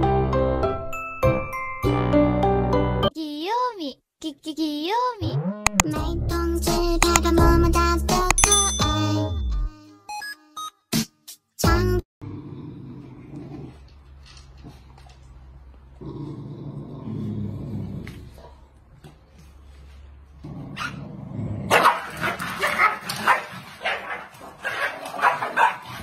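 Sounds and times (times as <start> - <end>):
dogs growling: 12.2 - 15.2, 15.9 - 18.7, 20.4 - 26.0
dogs barking: 21.7 - 26.0.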